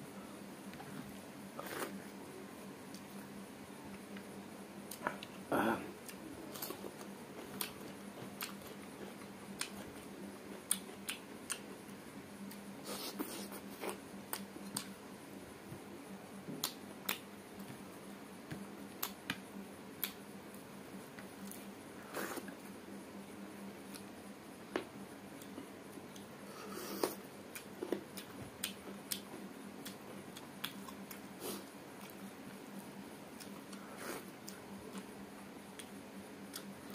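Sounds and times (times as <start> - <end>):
faint steady hum: 0.0 - 36.9
wet chewing clicks and smacks: 7.4 - 8.7, 14.3 - 15.0, 27.5 - 31.2.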